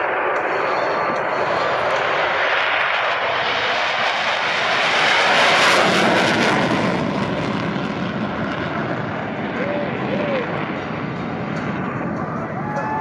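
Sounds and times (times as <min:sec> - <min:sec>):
jet passing: 0:00.0 - 0:13.0.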